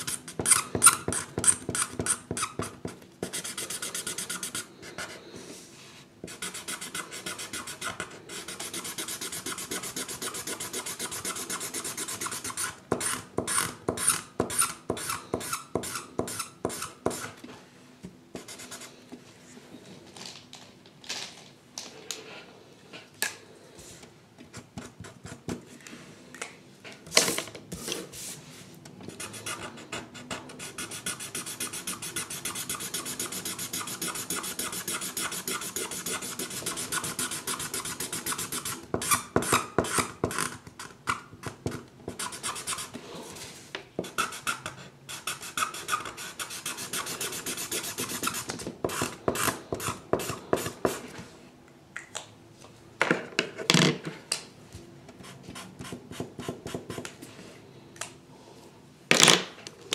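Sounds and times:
pencil scratching on paper: 0.0s - 5.2s, 6.2s - 17.4s, 29.1s - 40.4s, 42.1s - 43.0s, 44.0s - 51.1s.

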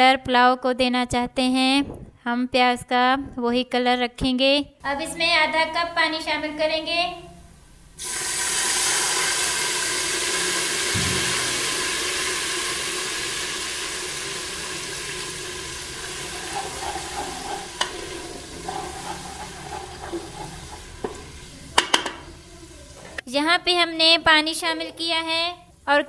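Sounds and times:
oil sizzling loudly: 7.9s - 23.3s
wooden spoon stirring: 14.7s - 23.2s
spoon knocking against pot: 16.0s - 22.3s.

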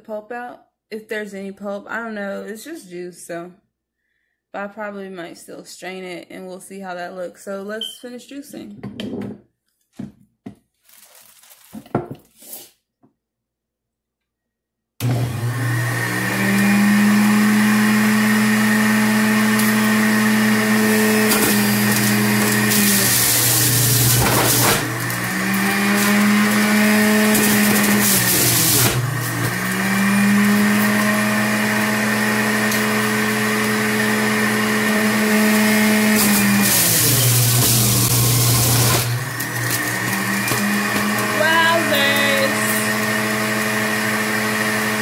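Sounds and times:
carrots grinding in juicer: 15.0s - 45.0s
juicer motor whining: 15.0s - 45.0s.

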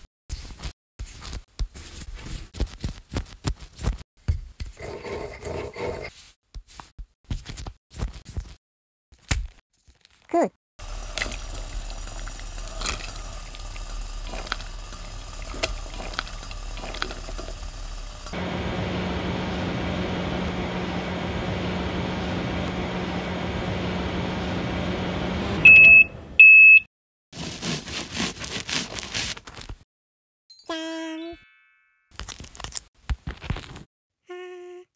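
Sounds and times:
water bubbling in pot: 10.8s - 18.4s
oven hum: 10.8s - 26.4s
oven timer beeps: 25.6s - 26.9s.

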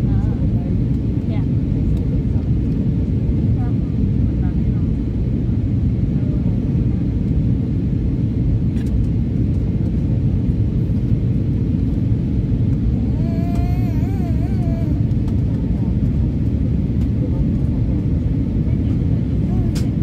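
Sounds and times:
aircraft cabin engine roar: 0.0s - 20.0s
faint steady hum: 10.7s - 17.9s.

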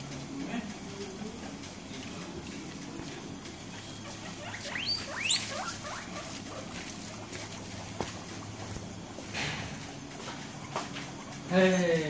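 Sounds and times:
guinea pigs squeaking: 3.6s - 8.5s.

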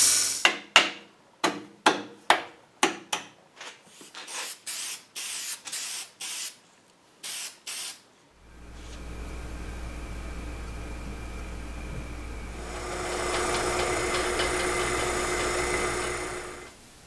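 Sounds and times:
spray paint can hissing: 0.0s - 0.4s, 4.3s - 6.6s, 7.2s - 8.0s.

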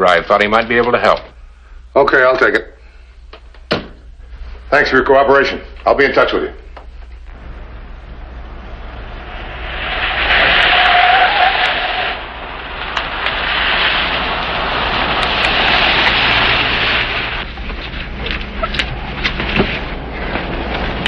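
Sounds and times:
cars driving past: 7.3s - 17.5s.

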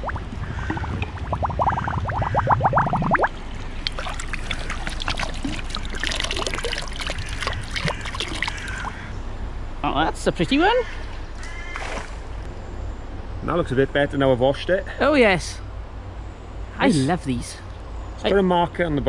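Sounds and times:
bottle gurgling: 0.0s - 9.1s
water splashing and sloshing: 0.0s - 9.2s, 10.8s - 12.5s.

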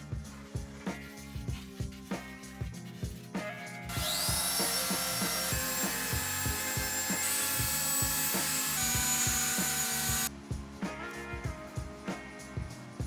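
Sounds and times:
background music with steady beat: 0.0s - 13.0s
orbital sander whining: 3.9s - 10.3s.

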